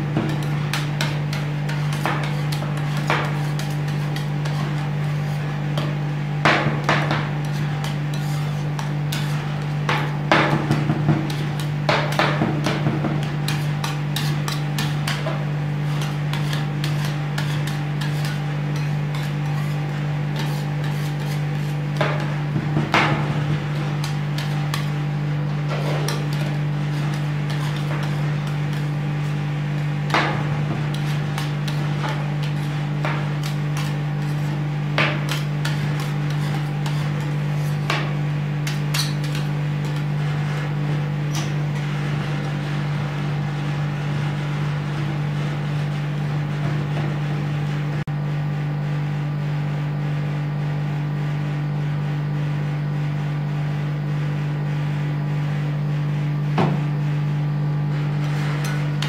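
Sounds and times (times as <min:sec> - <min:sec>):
metal spatulas chopping and scraping: 0:00.0 - 0:40.7, 0:58.1 - 0:59.0
steady low hum: 0:00.0 - 0:50.1.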